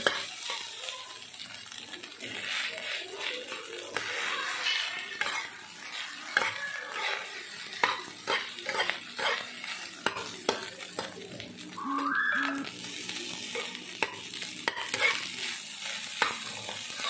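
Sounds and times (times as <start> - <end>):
soft sizzle: 0.0 - 17.0
spatula scraping a frying pan: 2.2 - 10.3, 13.5 - 17.0.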